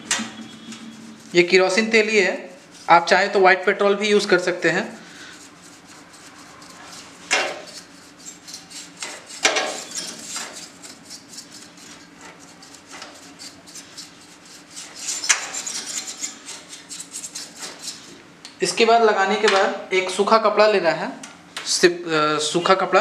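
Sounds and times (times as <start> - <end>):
paintbrush scrubbing fan blades: 0.0 - 18.2.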